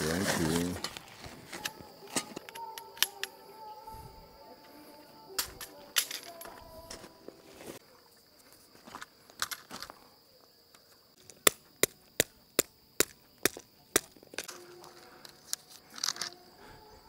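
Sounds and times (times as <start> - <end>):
tent stake being hammered: 11.4 - 14.1.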